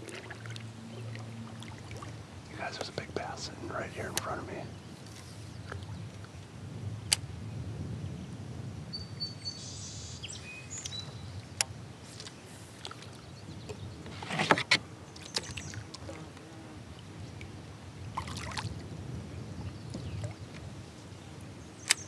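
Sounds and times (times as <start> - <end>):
paddle splashing: 0.0 - 3.5, 4.1 - 6.5, 12.0 - 18.9
small birds chirping faintly: 8.9 - 14.1.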